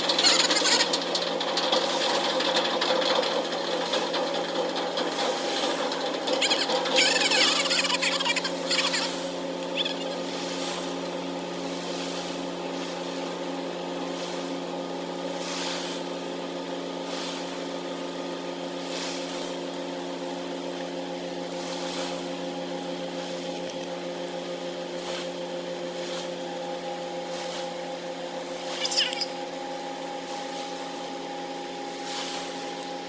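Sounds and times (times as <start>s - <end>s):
ship diesel engine drone: 0.0s - 1.2s, 5.1s - 13.4s.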